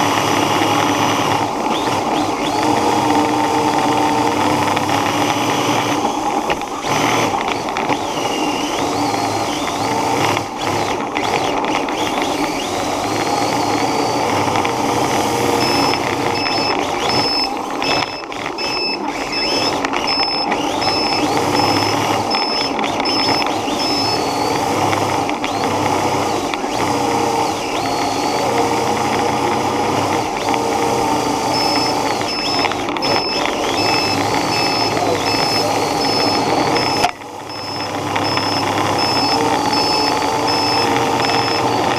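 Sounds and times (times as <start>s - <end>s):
small vehicle motor whining: 0.0s - 41.9s
high beeps: 15.5s - 24.6s, 31.4s - 41.9s.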